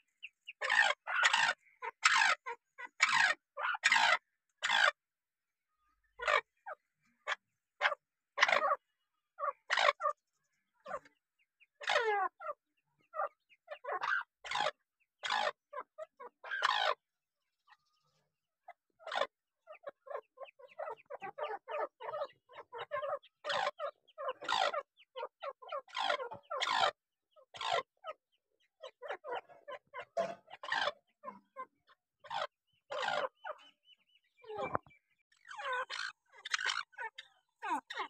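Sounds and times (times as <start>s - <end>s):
bird calling: 0.0s - 5.0s, 19.0s - 28.2s, 28.8s - 38.0s.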